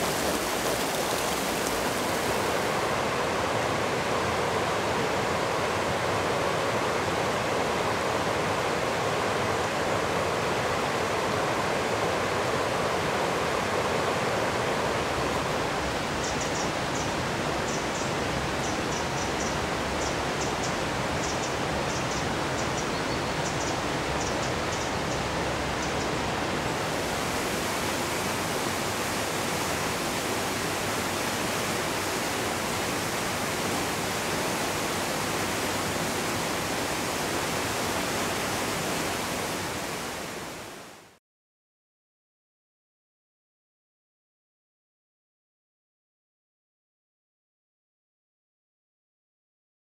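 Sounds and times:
water rushing over rocks: 0.0 - 8.9, 25.2 - 40.8
waterfall rushing: 0.0 - 18.7, 23.8 - 41.1.

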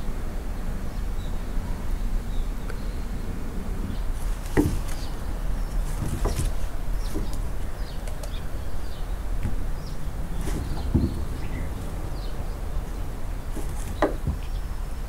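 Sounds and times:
steady low rumble: 0.0 - 15.0
light knocks and taps: 4.2 - 5.2, 5.8 - 8.4, 10.4 - 11.9, 13.5 - 14.5.

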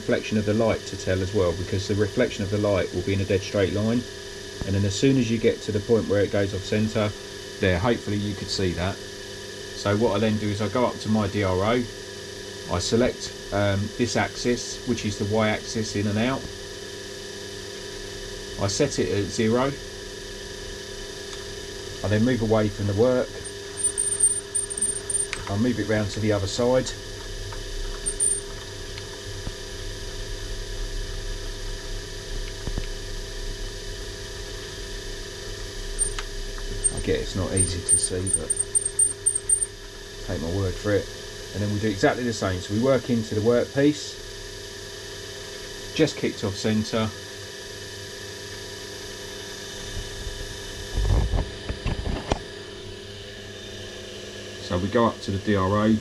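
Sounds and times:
milling machine humming: 23.3 - 25.5, 28.0 - 28.6, 36.0 - 39.7.

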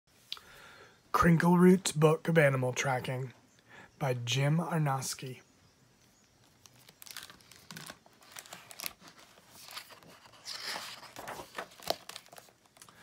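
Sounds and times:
book pages rustling: 6.2 - 13.0.

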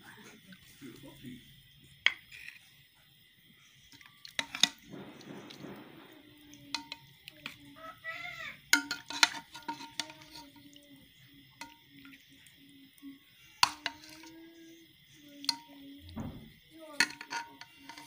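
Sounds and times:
spoon clinking on pot and plate: 4.3 - 4.9, 6.7 - 7.6, 8.7 - 10.8, 11.5 - 12.2, 13.6 - 14.4, 15.4 - 16.4, 17.0 - 18.0.

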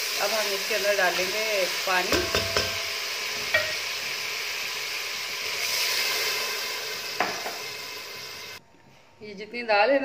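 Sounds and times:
food sizzling in hot oil: 0.0 - 8.6
light tap on pot: 2.1 - 2.8, 3.5 - 3.8.

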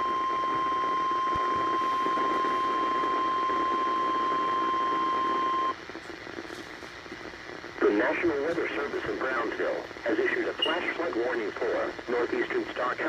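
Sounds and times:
steady high alarm beep: 0.0 - 5.7
faint radio hiss: 0.0 - 13.0.

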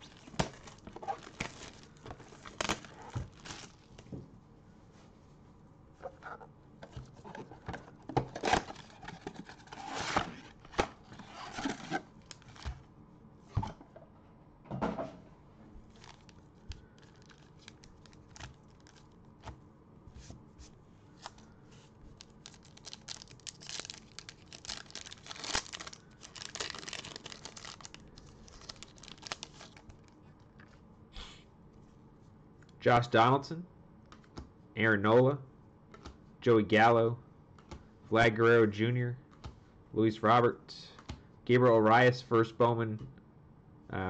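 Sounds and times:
plastic wrap tearing and crinkling: 0.0 - 4.0, 11.4 - 12.7, 15.9 - 19.1, 22.1 - 30.1.

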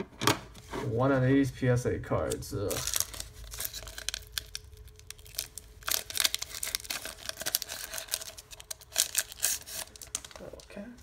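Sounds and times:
foil wrapper crinkling: 2.2 - 10.9.

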